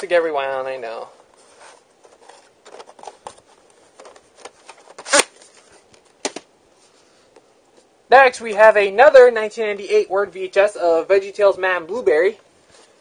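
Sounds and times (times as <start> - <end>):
cardboard sleeve rustling: 1.0 - 7.3.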